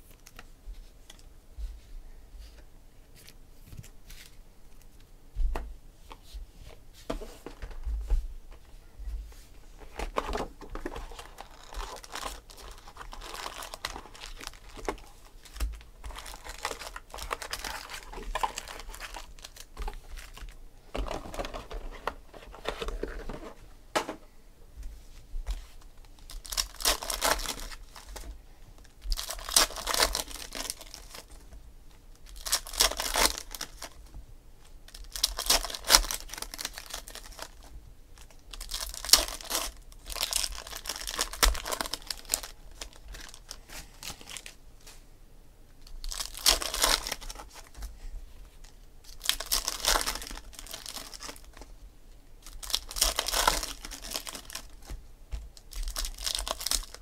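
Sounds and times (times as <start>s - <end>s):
foil wrappers torn and crinkled: 10.1s - 20.5s, 26.2s - 28.3s, 29.1s - 31.4s, 32.2s - 34.0s, 34.9s - 44.6s, 45.9s - 47.8s, 49.1s - 51.7s, 52.4s - 55.0s, 55.6s - 57.0s.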